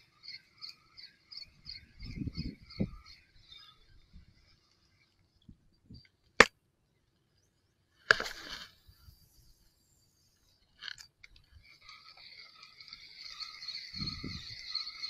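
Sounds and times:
fishing reel whirring: 9.0 - 15.0
fishing reel clicking: 10.8 - 15.0.

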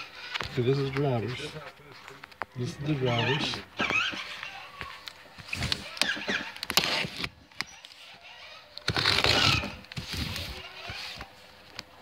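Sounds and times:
cardboard boxes scraping and rustling: 5.4 - 11.4.

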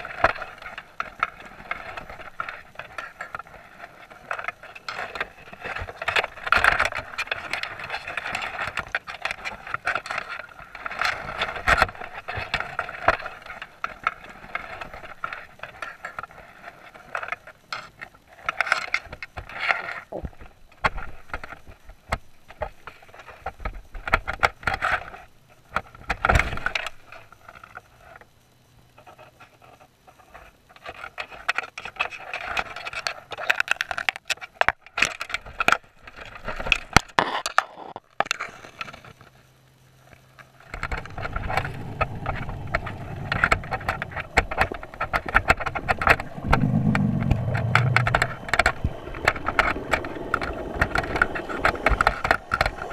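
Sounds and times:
underwater clicking and scraping: 0.0 - 21.7, 40.6 - 52.9.

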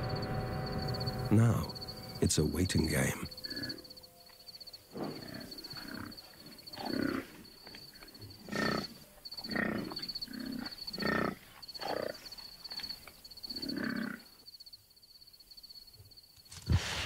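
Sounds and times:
high pulsing chirp: 0.0 - 4.9
lions grunting and growling: 4.9 - 7.4, 8.2 - 12.2.

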